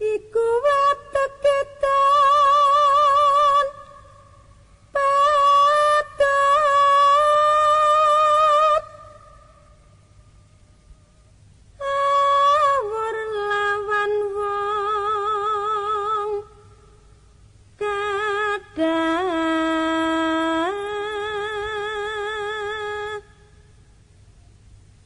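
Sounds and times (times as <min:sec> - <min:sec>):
person singing with vibrato: 0:00.0 - 0:11.2, 0:11.8 - 0:17.2, 0:17.8 - 0:23.7.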